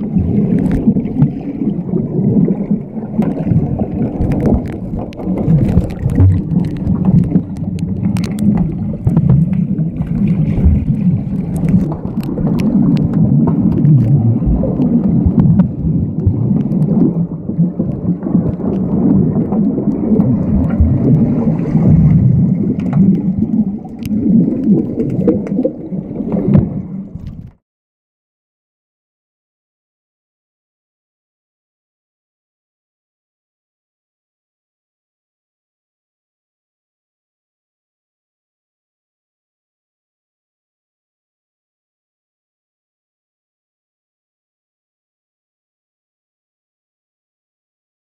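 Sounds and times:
muffled underwater rumble: 0:00.0 - 0:27.6
sharp underwater clicks: 0:00.4 - 0:01.4, 0:03.2 - 0:27.6.

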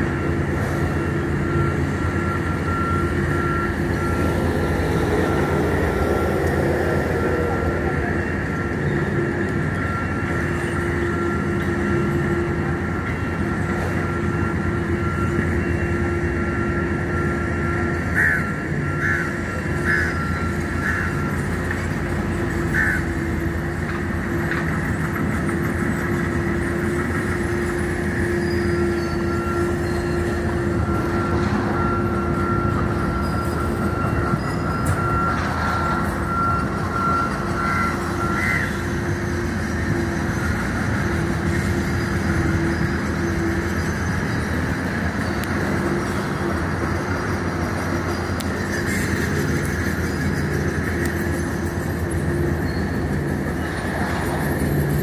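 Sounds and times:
diesel machinery drone: 0:00.0 - 0:55.0
high machine whine: 0:00.0 - 0:55.0.

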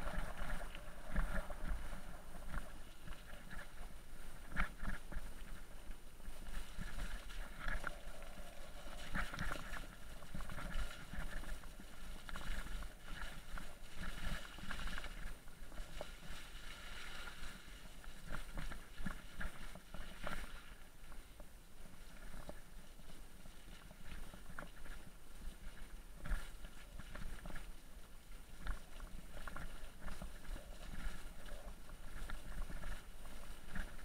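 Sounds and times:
bike tyre noise on mud: 0:00.0 - 0:20.7.

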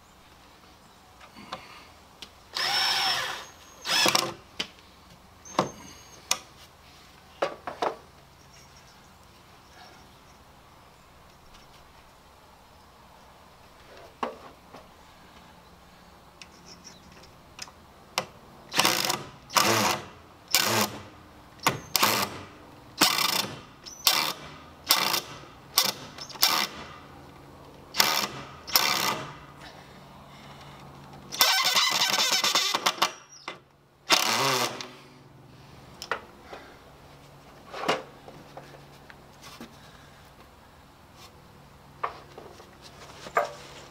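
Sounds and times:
cordless drill driving screws: 0:02.5 - 0:04.4, 0:18.7 - 0:21.0, 0:21.7 - 0:22.4, 0:23.0 - 0:27.0, 0:27.9 - 0:29.4, 0:31.4 - 0:33.2, 0:34.1 - 0:34.9.

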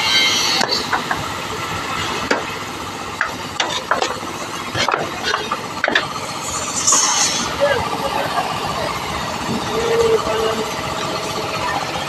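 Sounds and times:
water spraying from a hose: 0:06.2 - 0:07.8.

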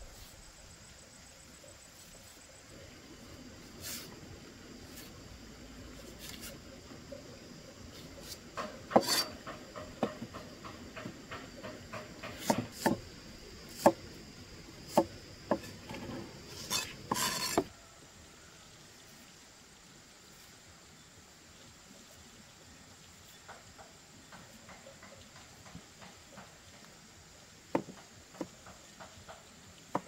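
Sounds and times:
cleaver chopping on wooden block: 0:08.9 - 0:09.3, 0:12.0 - 0:13.0, 0:13.7 - 0:14.0, 0:14.9 - 0:15.7.

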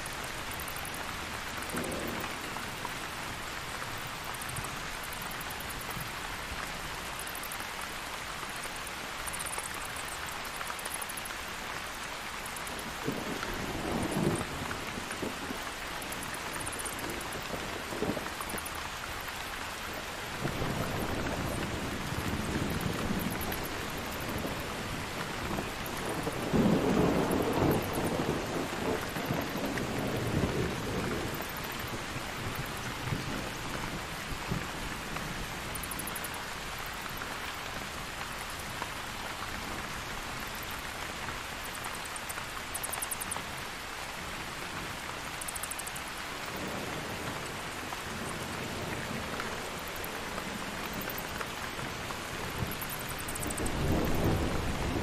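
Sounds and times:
heavy rain: 0:00.0 - 0:55.0
thunder rumbling: 0:52.3 - 0:55.0.

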